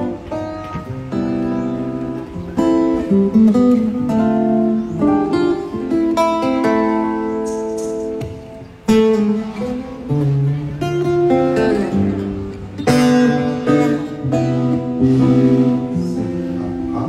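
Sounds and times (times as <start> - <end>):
guitar through stage speakers: 0.0 - 17.0
loud strummed guitar chords: 0.0 - 17.0.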